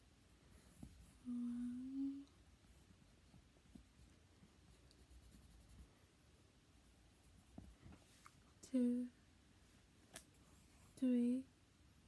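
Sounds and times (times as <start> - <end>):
person humming a tone: 1.2 - 2.3
light scratching and taps: 7.3 - 8.4.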